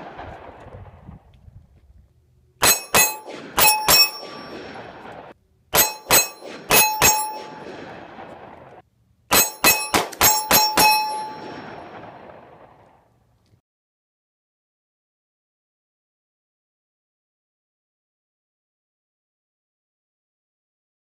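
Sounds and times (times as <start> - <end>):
bullets clanging on steel target: 2.6 - 4.6, 5.8 - 7.6, 9.3 - 11.5.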